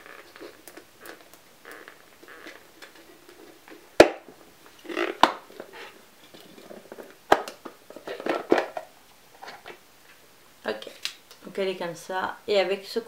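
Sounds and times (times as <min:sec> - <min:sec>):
plastic rustling: 0:00.0 - 0:10.2.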